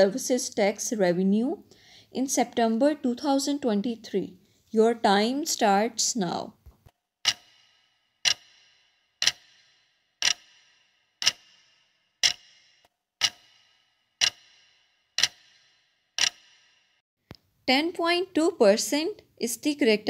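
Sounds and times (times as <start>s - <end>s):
clock ticking with ringing tail: 7.2s - 17.0s.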